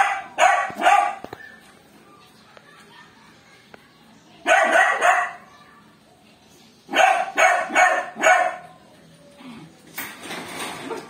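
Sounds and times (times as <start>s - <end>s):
puppies barking: 0.0s - 1.9s, 4.4s - 5.6s, 6.9s - 8.9s.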